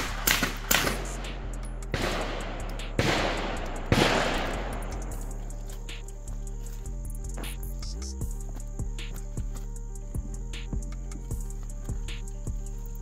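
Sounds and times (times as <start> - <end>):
gunshots with long echo: 0.0 - 5.2.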